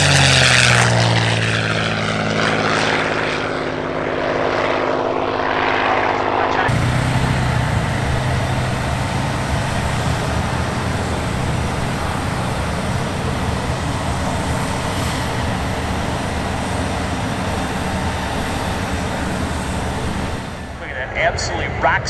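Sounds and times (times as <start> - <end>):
tractor diesel engine running: 4.8 - 21.3.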